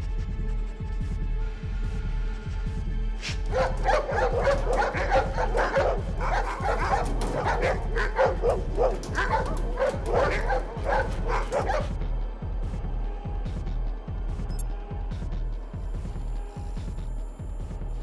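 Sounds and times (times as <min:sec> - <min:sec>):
low throbbing film score: 0:00.0 - 0:18.0
dogs barking frantically: 0:03.5 - 0:12.0.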